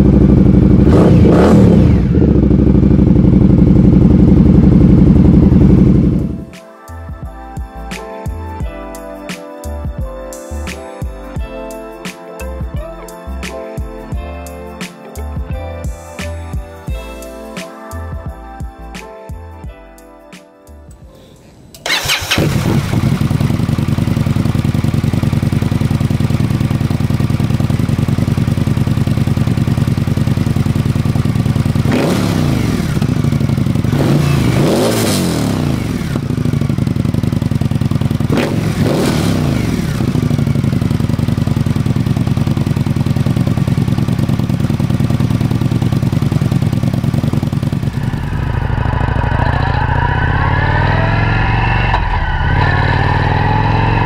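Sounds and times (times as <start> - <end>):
motorcycle engine revving: 0.0 - 6.5, 21.8 - 54.0.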